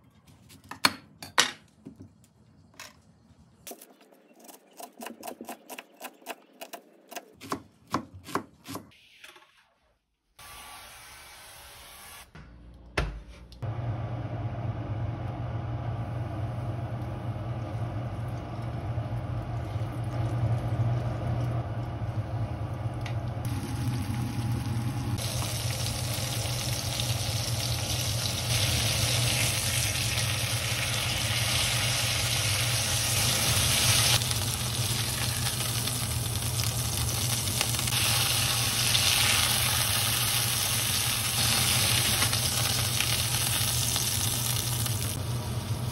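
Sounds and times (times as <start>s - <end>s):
steady low hum: 12.4s - 38.5s
chicken sizzling in frying pan: 23.4s - 45.9s.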